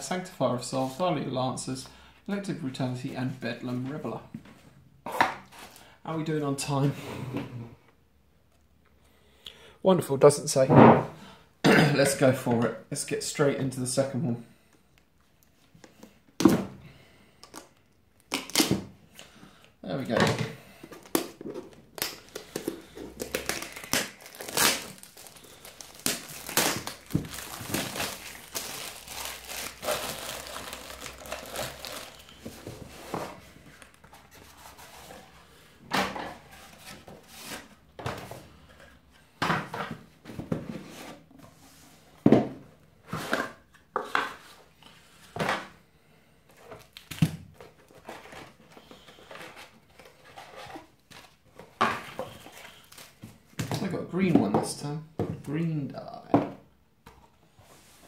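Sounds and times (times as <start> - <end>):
plastic wrap tearing and crinkling: 23.2 - 32.4.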